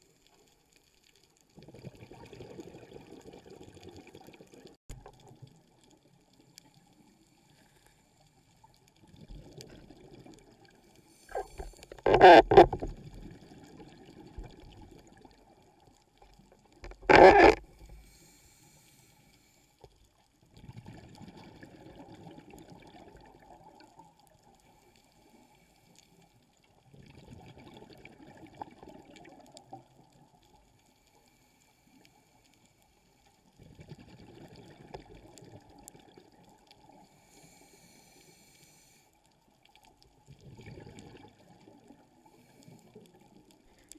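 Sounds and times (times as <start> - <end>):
underwater bubble bursts: 1.6 - 4.8, 40.3 - 42.0
diver breathing through regulator: 11.1 - 12.0, 17.9 - 19.7, 37.1 - 39.1.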